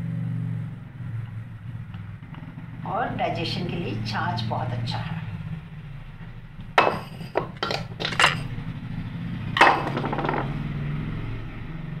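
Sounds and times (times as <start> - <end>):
steel jar set down on counter: 6.8 - 8.4, 9.6 - 10.5
kitchenware knocking and clinking: 6.8 - 8.5, 9.6 - 10.6.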